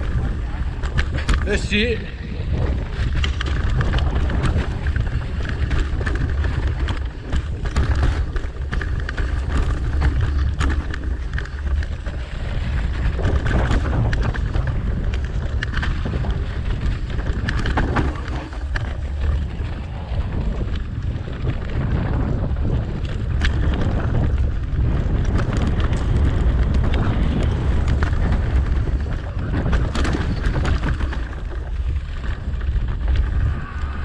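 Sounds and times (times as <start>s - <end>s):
bike clicks and rattles: 0.0s - 34.0s
wind buffeting microphone: 0.0s - 34.0s.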